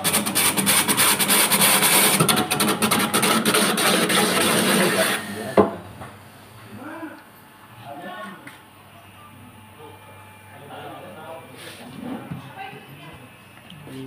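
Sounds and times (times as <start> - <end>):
machine rasping coconut husk: 0.0 - 5.7.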